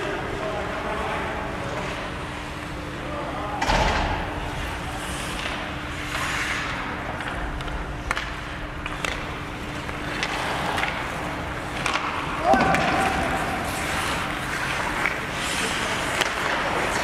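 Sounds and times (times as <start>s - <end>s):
steady hum: 0.0s - 17.0s
skates scraping on ice: 4.6s - 7.4s, 8.0s - 17.0s
sticks clicking on puck: 7.2s - 11.1s, 11.7s - 17.0s.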